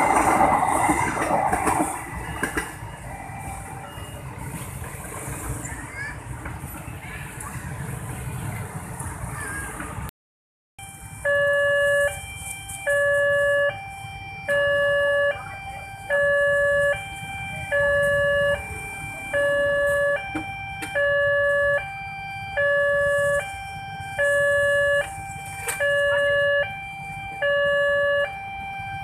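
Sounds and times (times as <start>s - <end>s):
level crossing alarm two tones: 10.8s - 29.0s.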